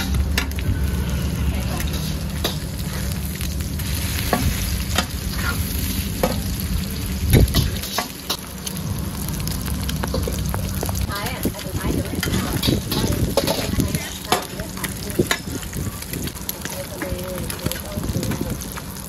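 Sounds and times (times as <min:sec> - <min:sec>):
constant low rumble: 0:00.0 - 0:19.0
food sizzling in a pan: 0:00.0 - 0:19.0
metal spatula scraping a pan: 0:00.4 - 0:06.5, 0:07.4 - 0:08.5, 0:12.2 - 0:15.6.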